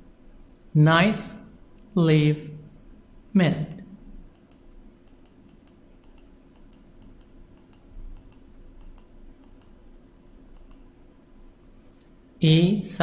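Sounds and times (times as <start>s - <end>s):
low steady hum: 0.0s - 13.0s
rapid light clicking: 3.7s - 9.8s, 10.5s - 10.9s.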